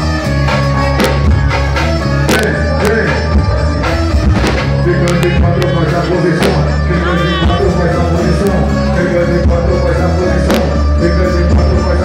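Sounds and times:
heavy bass: 0.0s - 12.0s
keyboard: 0.0s - 12.0s
live band playing amplified music: 0.0s - 12.0s
drum hits: 1.0s - 1.7s, 4.2s - 5.8s, 6.4s - 7.6s.

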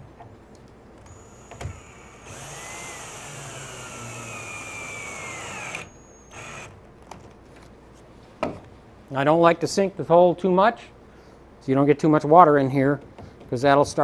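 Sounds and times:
cordless drill motor running: 1.1s - 6.7s
drill click: 1.1s - 6.8s.

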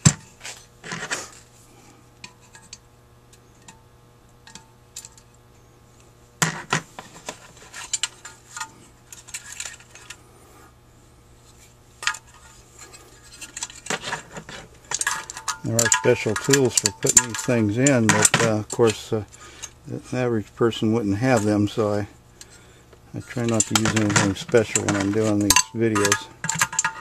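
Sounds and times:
metallic clinks and knocks: 13.2s - 19.0s, 23.3s - 27.0s.

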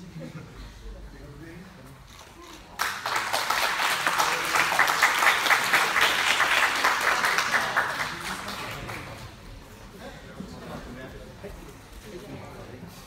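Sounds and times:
spectators applauding: 2.8s - 9.4s.

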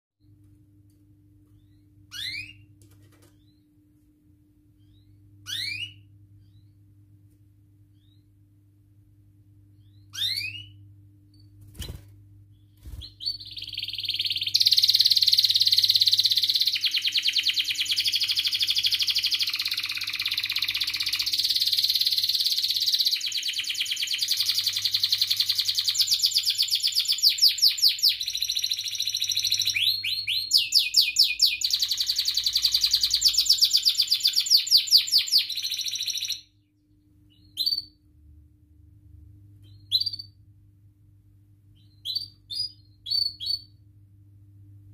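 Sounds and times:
canary singing trills: 1.5s - 2.7s, 4.8s - 6.8s, 9.8s - 10.8s, 11.4s - 36.6s, 37.3s - 38.0s, 39.6s - 40.4s, 41.8s - 43.8s.

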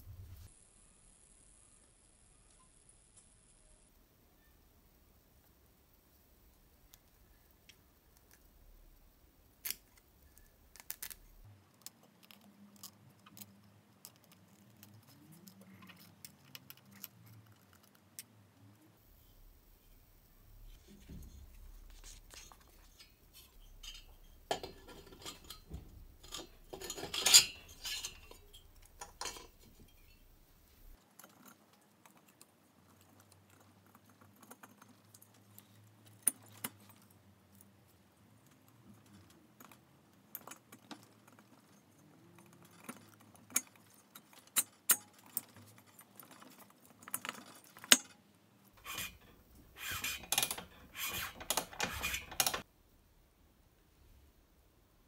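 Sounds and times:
metallic clinks and scrapes: 19.2s - 37.2s, 38.9s - 48.2s, 48.8s - 52.7s.

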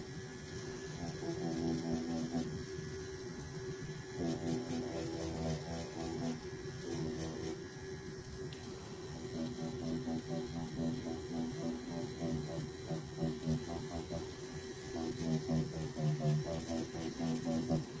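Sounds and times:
tattoo machine buzzing: 15.0s - 17.9s.

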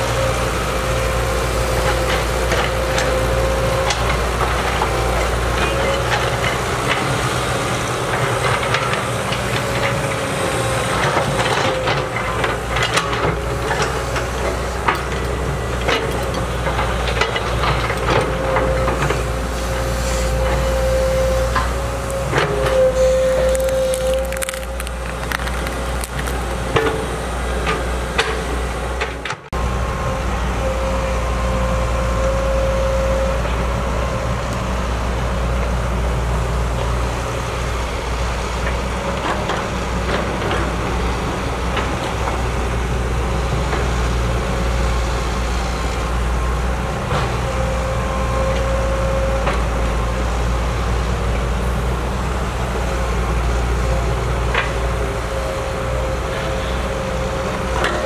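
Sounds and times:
excavator diesel engine running: 0.0s - 58.0s
hydraulic whine: 17.6s - 34.6s.

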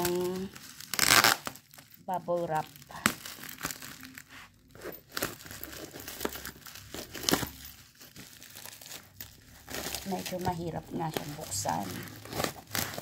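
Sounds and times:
bubble wrap crinkling: 0.0s - 13.0s
scissors cutting plastic: 5.1s - 13.0s.

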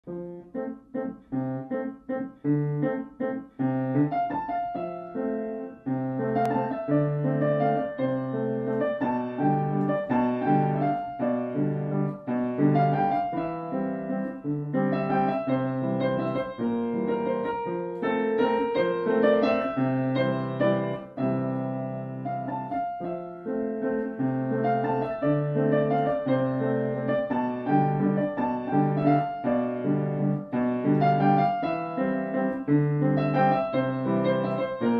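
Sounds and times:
piano music: 0.0s - 34.9s.

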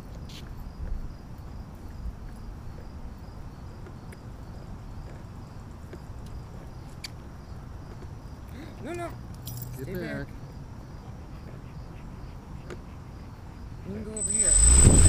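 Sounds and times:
high cricket chirps: 13.6s - 15.0s
low steady rumble: 14.2s - 15.0s.

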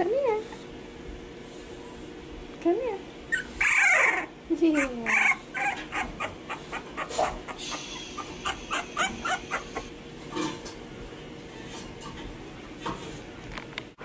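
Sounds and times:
puppies whimpering: 3.3s - 9.9s.

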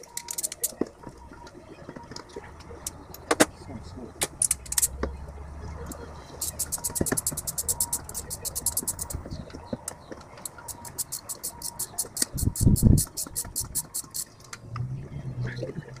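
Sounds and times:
socket ratchet clicking rapidly: 6.4s - 9.2s, 10.7s - 14.3s.

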